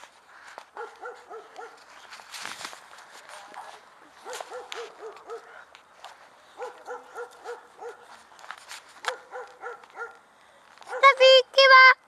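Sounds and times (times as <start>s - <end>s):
dog yelping: 0.8s - 1.8s, 4.2s - 5.5s, 6.6s - 8.1s, 9.1s - 10.2s.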